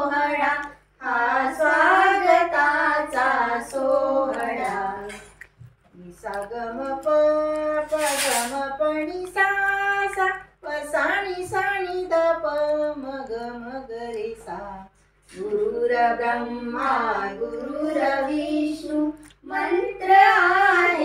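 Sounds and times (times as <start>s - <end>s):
woman and girl singing: 6.0s - 21.0s.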